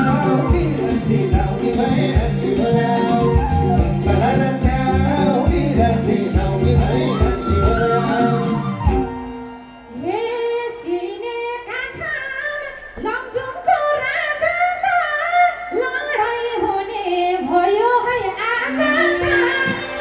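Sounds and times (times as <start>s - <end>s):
woman singing into microphone: 9.9s - 20.0s.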